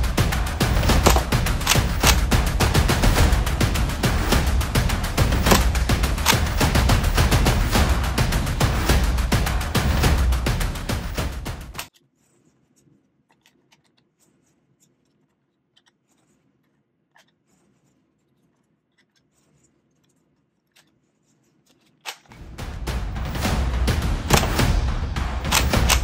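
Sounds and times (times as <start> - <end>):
drum-driven background music: 0.0 - 11.9, 22.3 - 26.0
plastic clicks and scrapes: 11.8 - 22.3.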